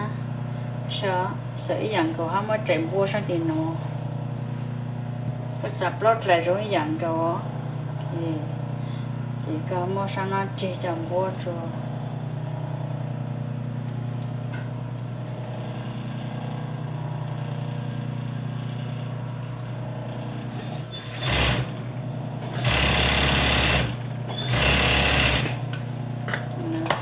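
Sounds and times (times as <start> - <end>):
sewing machine motor humming: 11.6 - 27.0
fast machine stitching: 15.5 - 25.7.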